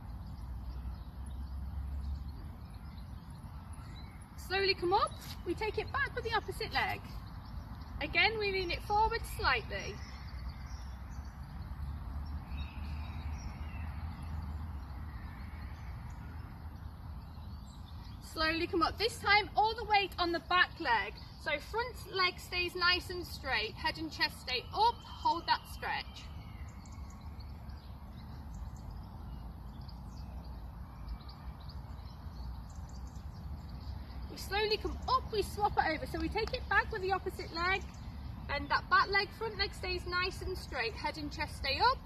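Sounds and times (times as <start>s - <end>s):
faint bird chirps: 24.6s - 35.6s.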